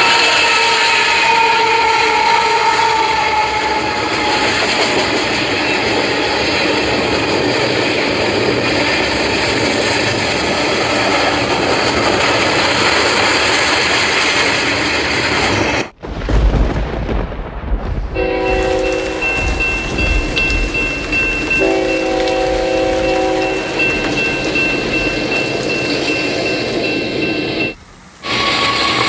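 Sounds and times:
train horn chord: 0.0s - 6.2s, 18.2s - 29.0s
model train rushing past: 0.0s - 15.9s, 18.2s - 29.0s
deep rumble: 15.3s - 27.8s.

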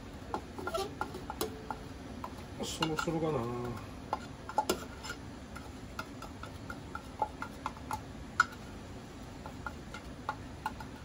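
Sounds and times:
spatula scraping pan: 0.1s - 11.0s.

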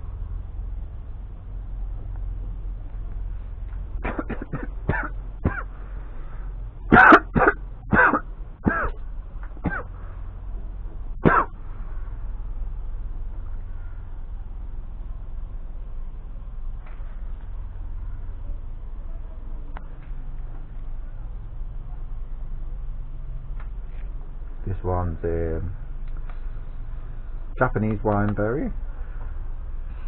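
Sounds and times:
person coughing: 4.0s - 5.7s, 6.9s - 9.0s, 9.6s - 9.9s, 11.2s - 11.5s.

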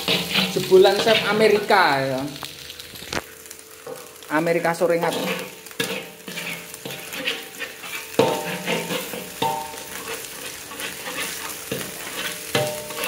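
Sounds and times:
spatula scraping a wok: 0.0s - 1.8s, 5.0s - 13.0s
egg sizzling in a wok: 0.0s - 13.0s
spatula clanking against wok: 5.2s - 13.0s.

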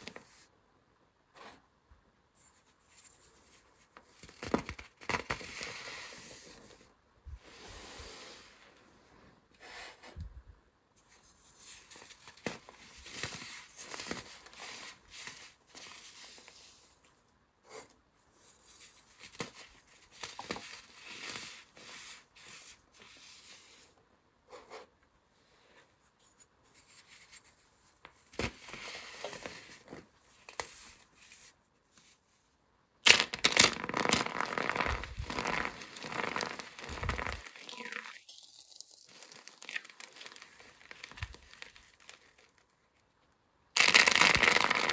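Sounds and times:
hands crunching soap crumbs: 33.1s - 42.7s.

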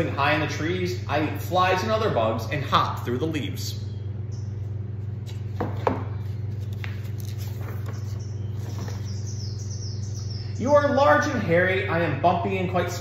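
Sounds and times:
steady low hum: 0.0s - 13.0s
book page turning: 6.2s - 9.2s.

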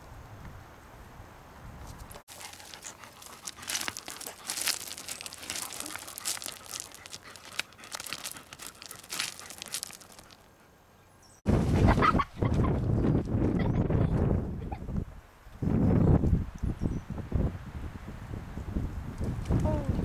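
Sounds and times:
dog claws scraping gravelly soil: 2.1s - 10.5s.

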